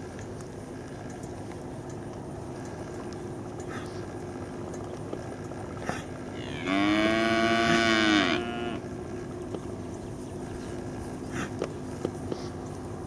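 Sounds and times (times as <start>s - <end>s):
cow mooing: 6.3s - 8.9s.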